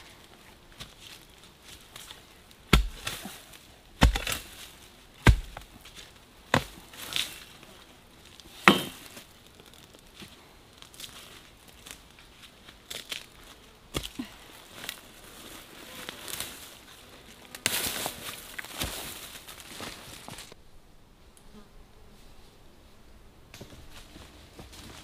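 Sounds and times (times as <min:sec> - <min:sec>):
digging bar striking soil: 0:02.7 - 0:07.4, 0:08.6 - 0:09.1
rustle of leaf litter and twigs: 0:05.7 - 0:20.6.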